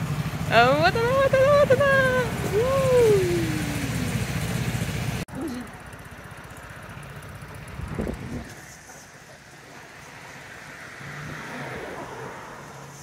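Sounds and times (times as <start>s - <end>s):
scooter engine idling: 0.0s - 10.1s
low engine hum: 0.0s - 13.0s.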